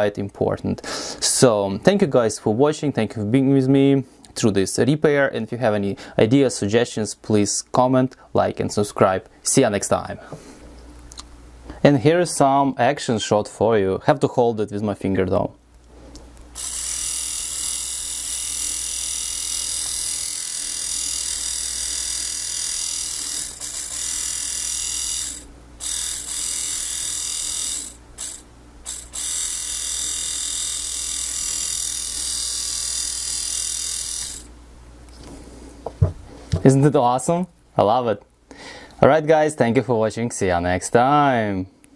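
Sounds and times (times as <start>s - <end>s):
electric motor whirring: 16.6s - 34.5s
gears meshing: 16.6s - 34.5s.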